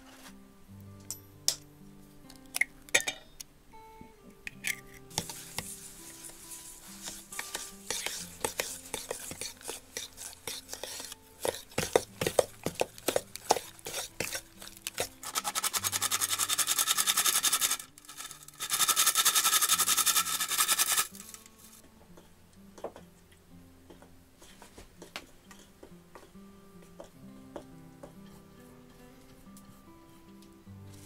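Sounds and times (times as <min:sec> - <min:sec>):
fast whisking against bowl: 0:05.2 - 0:21.4
metal whisk clinking in bowl: 0:07.0 - 0:18.4.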